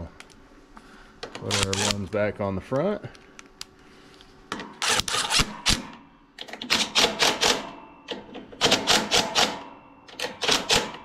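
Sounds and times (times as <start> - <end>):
cordless drill rattling and clicking: 1.3 - 2.0.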